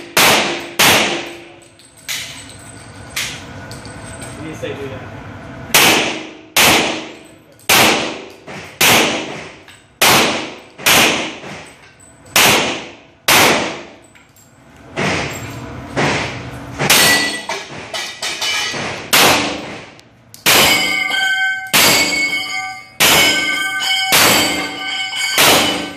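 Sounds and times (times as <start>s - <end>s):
handgun shots echoing indoors: 0.0s - 2.3s, 5.7s - 11.7s, 12.3s - 14.1s, 18.7s - 22.4s, 23.0s - 25.9s
steel plates clanging: 16.8s - 19.1s, 20.5s - 25.9s.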